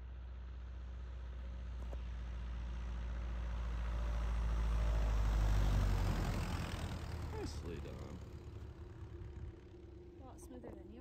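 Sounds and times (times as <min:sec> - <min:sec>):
light airplane engine droning: 0:05.1 - 0:11.0.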